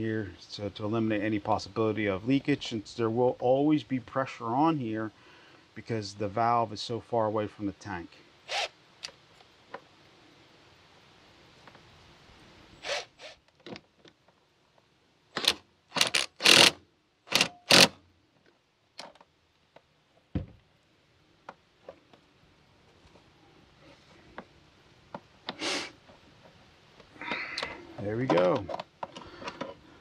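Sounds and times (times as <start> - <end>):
cordless driver whirring: 8.5 - 8.7, 15.4 - 17.9
thump: 20.3 - 20.6.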